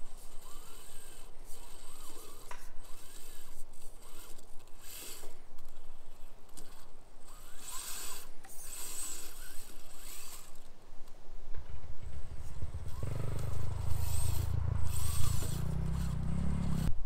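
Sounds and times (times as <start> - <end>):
electric motor and gears whining: 0.0 - 10.8, 11.5 - 17.0
tires scraping on rock: 11.6 - 16.9.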